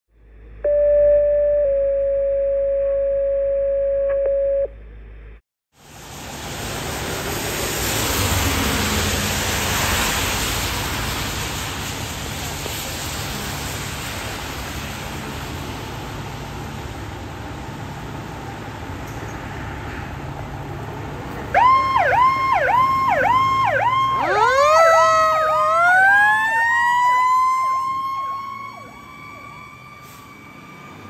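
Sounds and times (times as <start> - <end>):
two-tone radio alert: 0.6 - 4.7
car passing on wet road: 5.8 - 31.0.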